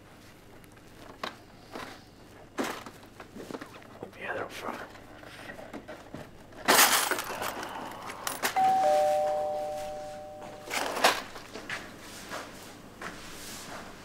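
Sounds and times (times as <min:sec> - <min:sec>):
two-tone electronic chime: 0:08.6 - 0:10.8.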